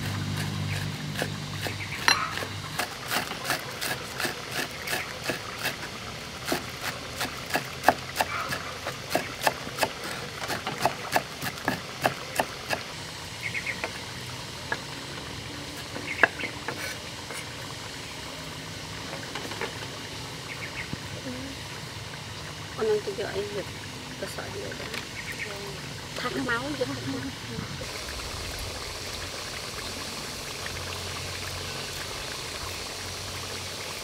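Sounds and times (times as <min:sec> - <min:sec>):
cleaver chopping on wooden board: 0:07.2 - 0:12.8.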